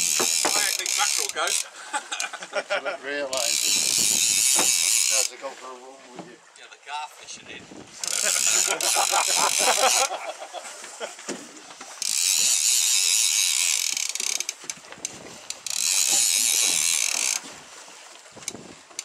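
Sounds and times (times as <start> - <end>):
fishing reel ratcheting: 0.0 - 2.3, 3.3 - 5.4, 8.0 - 10.2, 11.9 - 17.5, 18.4 - 19.0.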